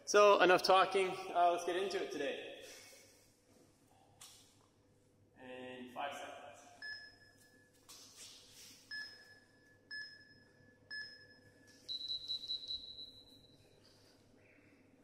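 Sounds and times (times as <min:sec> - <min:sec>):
interval timer beeps: 0:06.8 - 0:07.7, 0:08.9 - 0:13.6.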